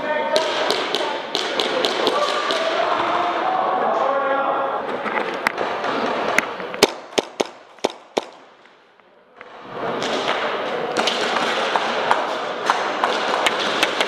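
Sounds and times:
airsoft gun shots: 6.8s - 8.5s.

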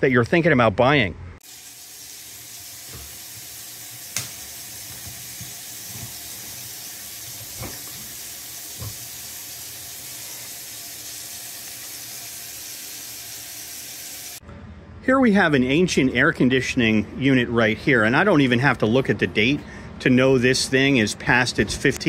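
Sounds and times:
steady hiss: 1.4s - 14.4s.

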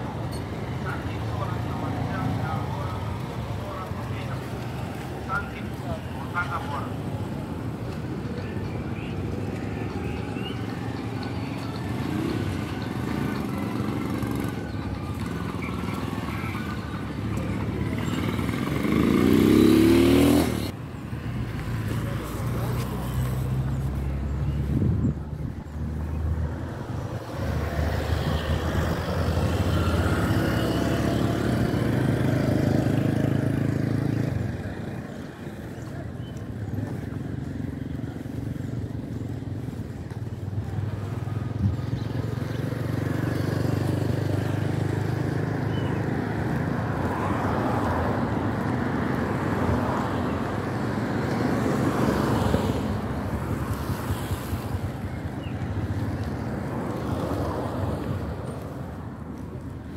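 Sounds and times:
road and tyre noise: 0.0s - 59.9s
vehicle engine hum: 0.0s - 59.9s.

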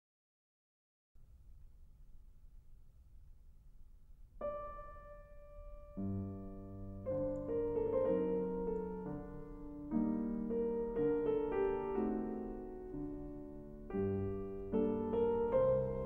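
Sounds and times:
solo piano music: 4.2s - 16.0s.

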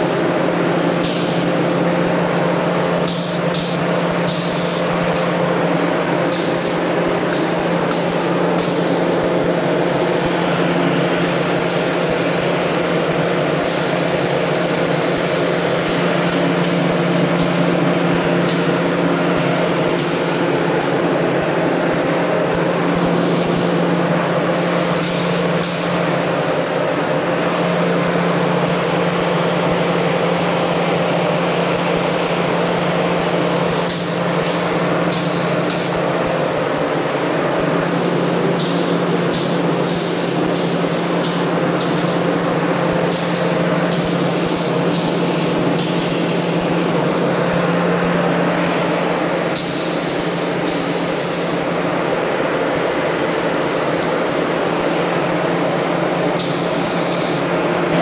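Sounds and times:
spray gun hissing: 0.0s - 0.3s, 0.9s - 1.6s, 2.4s - 5.0s, 6.2s - 9.4s, 16.4s - 19.2s, 19.8s - 20.7s, 24.9s - 26.0s, 33.8s - 34.4s, 35.0s - 36.0s, 38.6s - 42.4s, 43.0s - 46.7s, 49.5s - 51.8s, 56.4s - 57.5s
steady motor hum: 0.0s - 58.0s.

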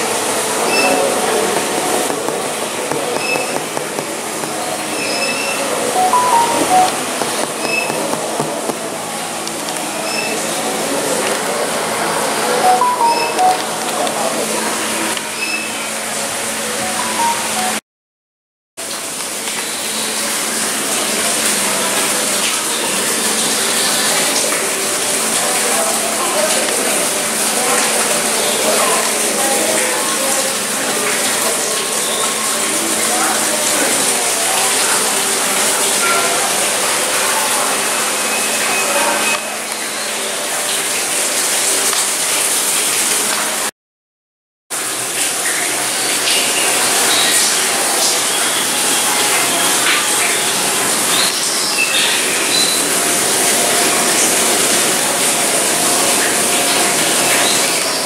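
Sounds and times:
rushing water-like noise: 0.0s - 17.8s, 18.8s - 43.7s, 44.8s - 58.0s
water rushing: 0.0s - 17.8s.

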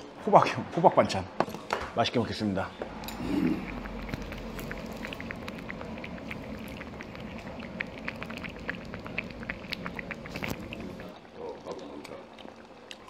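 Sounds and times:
stew bubbling in a pot: 2.9s - 13.0s.

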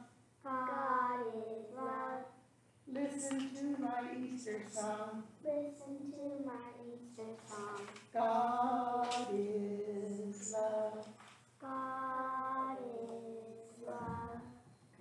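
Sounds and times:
child singing slowly: 0.0s - 2.4s, 5.4s - 14.6s.

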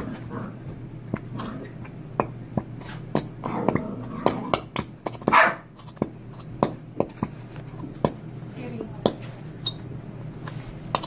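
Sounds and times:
dogs barking: 5.2s - 5.7s.

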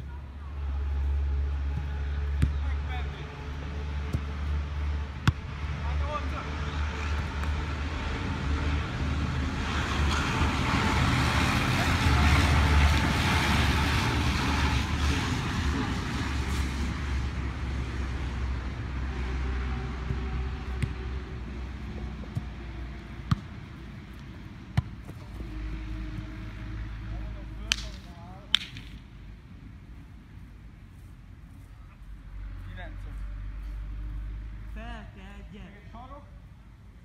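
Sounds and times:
low traffic rumble: 0.0s - 37.0s
vehicle passing: 0.2s - 29.4s, 30.9s - 35.8s
football being kicked: 1.7s - 2.6s, 5.2s - 5.5s, 20.0s - 21.0s, 23.2s - 23.6s, 24.7s - 25.3s.

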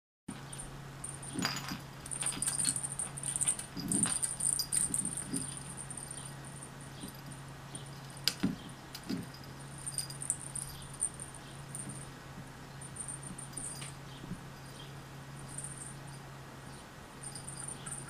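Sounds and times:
wire spring toy jingling: 0.3s - 12.1s, 12.8s - 16.2s, 17.2s - 18.0s
steady low hum: 0.3s - 18.0s.

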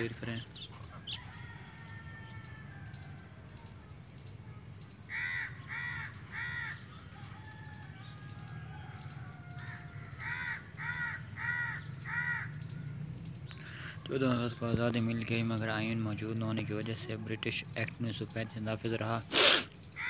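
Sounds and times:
bird calling: 0.0s - 14.6s, 19.2s - 20.0s.

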